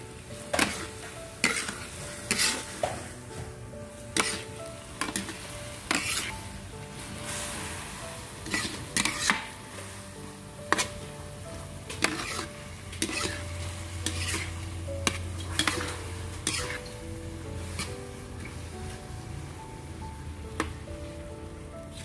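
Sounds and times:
syrup sizzling in a pan: 0.0 - 21.2
spatula scraping a pan: 0.5 - 3.2, 3.9 - 9.7, 10.6 - 11.1, 11.8 - 17.0, 17.6 - 18.6.

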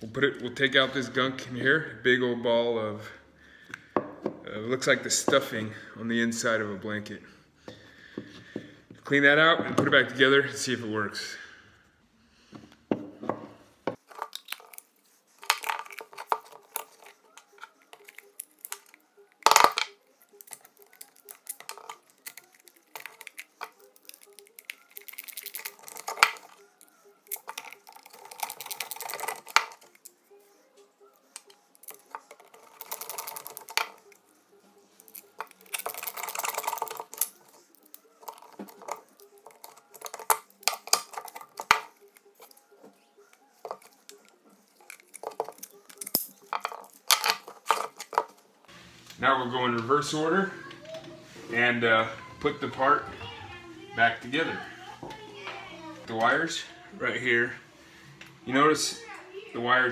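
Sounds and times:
plastic parts clicking and rattling: 14.0 - 30.1, 31.3 - 34.2, 35.0 - 42.6, 43.6 - 48.4.

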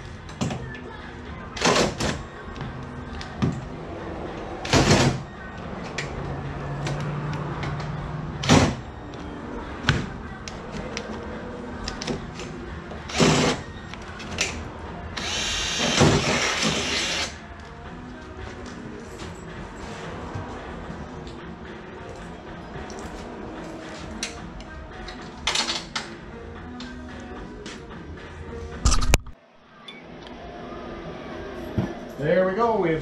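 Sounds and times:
power drill running: 15.2 - 17.3.

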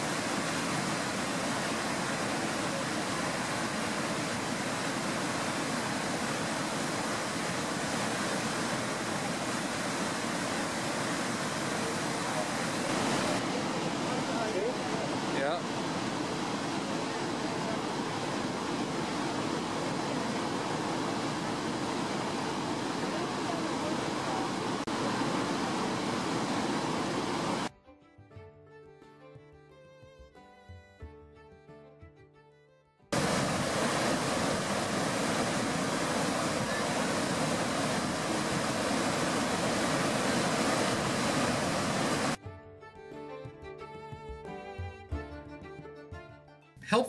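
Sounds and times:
waterfall rushing: 0.0 - 27.7, 33.2 - 42.4.

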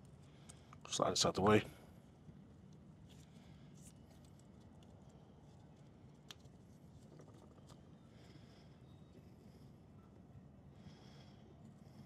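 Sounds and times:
faint small clicks: 6.2 - 7.9.

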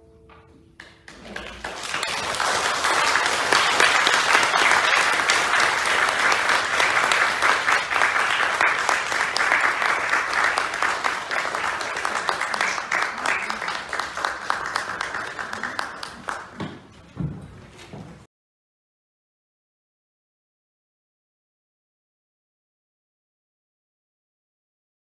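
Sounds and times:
audience applauding: 0.8 - 16.9.

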